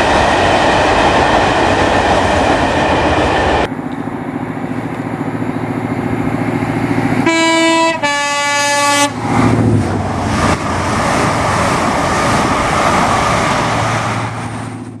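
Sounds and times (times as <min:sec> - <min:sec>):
train wheels rushing: 0:00.0 - 0:15.0
low engine hum: 0:02.4 - 0:08.1
train horn: 0:07.2 - 0:09.2.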